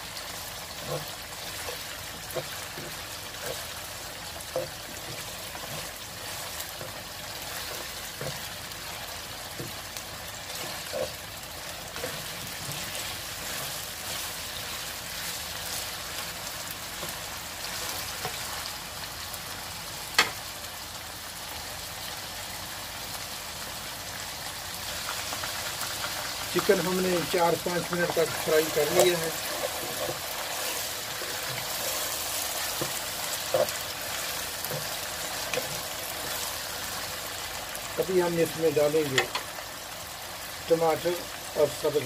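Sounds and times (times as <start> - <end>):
chicken sizzling in oil: 0.0 - 42.0
plastic spatula scraping a pan: 4.4 - 8.6, 27.6 - 36.5.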